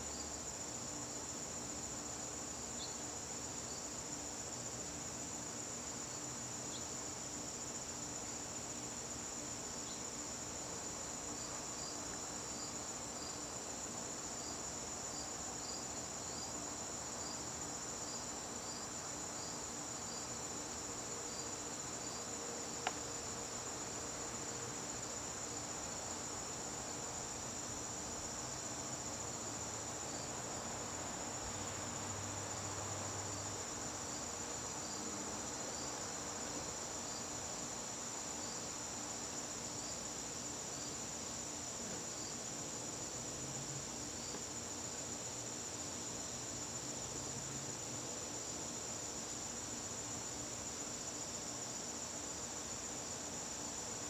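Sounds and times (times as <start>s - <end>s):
crickets trilling: 0.0s - 54.0s.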